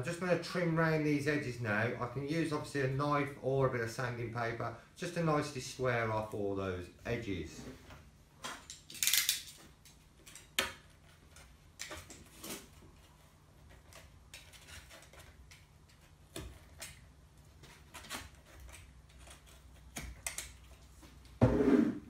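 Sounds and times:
hand tool scraping hardboard: 0:21.4 - 0:22.0.

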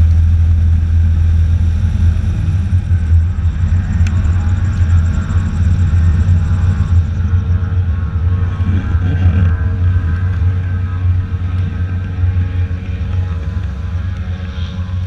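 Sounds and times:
airboat engine and propeller drone: 0:00.0 - 0:15.0.

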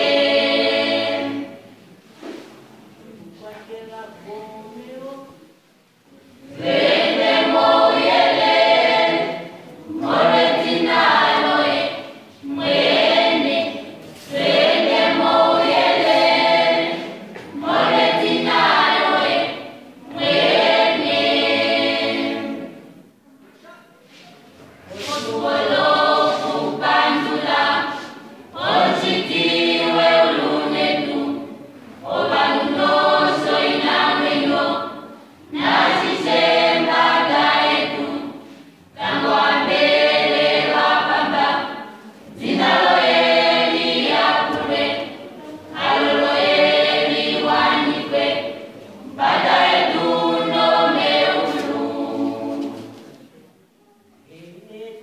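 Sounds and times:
youth choir singing unaccompanied: 0:00.0 - 0:02.1, 0:02.8 - 0:23.2, 0:24.1 - 0:55.0.

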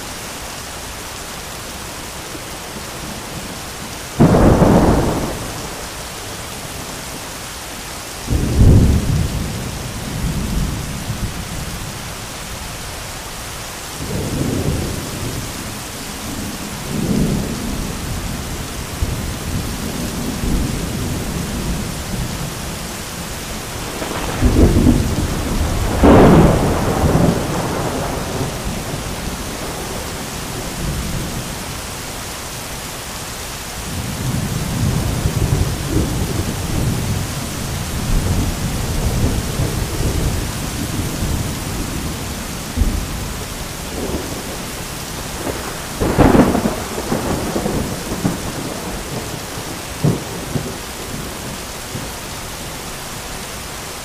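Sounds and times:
heavy rain hissing: 0:00.0 - 0:54.0
thunder cracking and rumbling: 0:04.1 - 0:06.4, 0:23.6 - 0:31.4, 0:33.9 - 0:52.0.

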